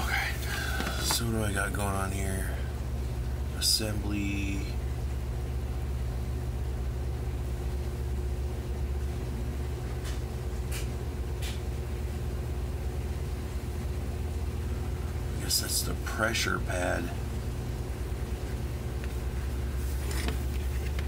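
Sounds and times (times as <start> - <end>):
mechanical hum and rumble: 0.0 - 21.0
paper sheet rustling: 19.8 - 21.0.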